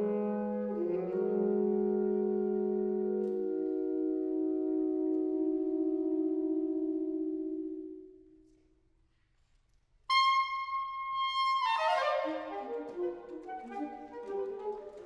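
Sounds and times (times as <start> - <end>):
saxophone quartet playing: 0.0 - 8.0, 10.1 - 15.0.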